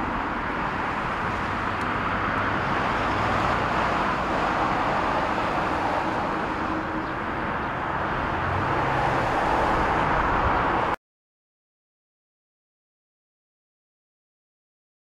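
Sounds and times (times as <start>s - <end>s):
jet engine roar: 0.0s - 10.9s.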